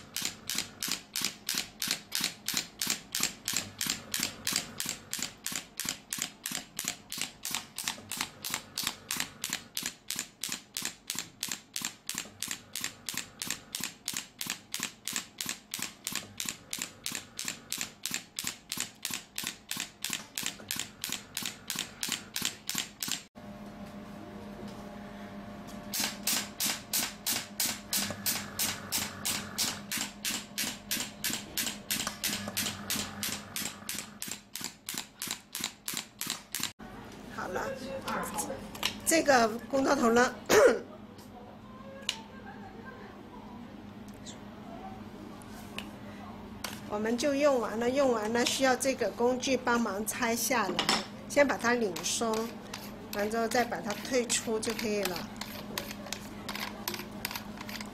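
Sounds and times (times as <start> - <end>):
fast regular clicking: 0.1 - 23.3.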